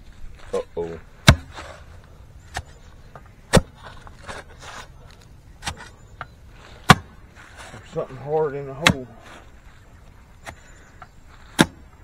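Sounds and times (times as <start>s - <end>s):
digger blades striking hard soil: 1.2s - 1.8s, 3.5s - 4.9s, 5.6s - 6.0s, 6.8s - 7.2s, 8.7s - 9.1s, 11.5s - 11.9s.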